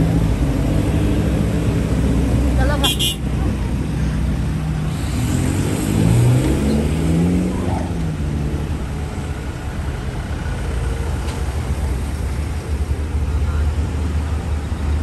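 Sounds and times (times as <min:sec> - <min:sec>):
road noise: 0:00.0 - 0:15.0
car engine accelerating: 0:04.4 - 0:09.0.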